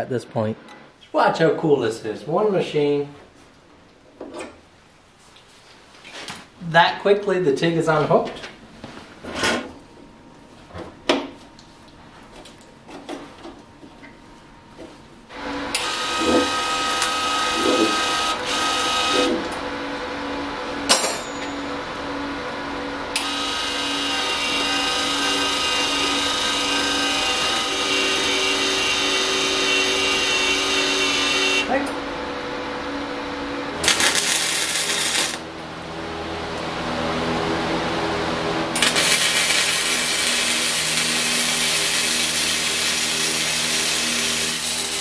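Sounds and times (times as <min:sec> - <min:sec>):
welder wire feed motor whirring: 0:15.3 - 0:20.4, 0:22.0 - 0:31.7, 0:33.8 - 0:35.5, 0:38.7 - 0:45.0.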